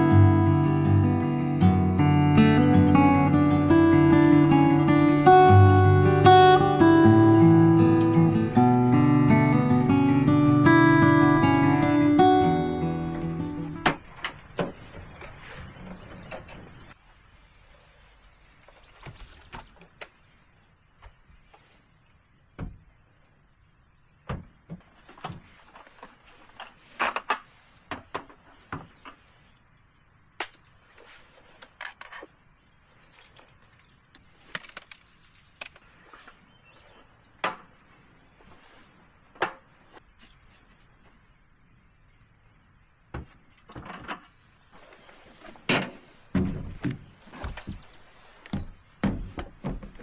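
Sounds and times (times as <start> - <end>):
objects knocking and clunking: 43.1 - 44.4, 45.5 - 47.9, 48.5 - 50.0.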